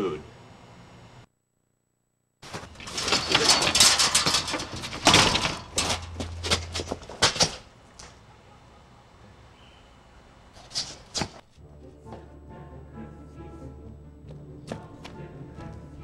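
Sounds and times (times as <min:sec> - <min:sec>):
metal table crashing over: 0:02.4 - 0:07.7
clattering and scuffling: 0:02.4 - 0:08.2, 0:10.6 - 0:11.4.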